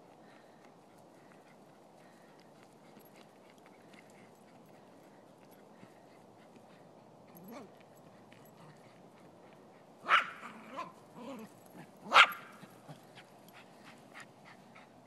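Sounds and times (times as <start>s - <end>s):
dog barking sharply: 10.1s - 10.9s, 12.1s - 12.5s
dog yipping: 10.1s - 10.9s, 12.1s - 12.5s.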